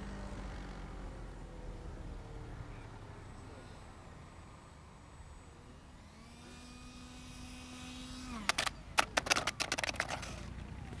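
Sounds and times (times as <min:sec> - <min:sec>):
electric ducted fan whining: 0:04.3 - 0:11.0
sharp knocks and rattles: 0:08.5 - 0:11.0.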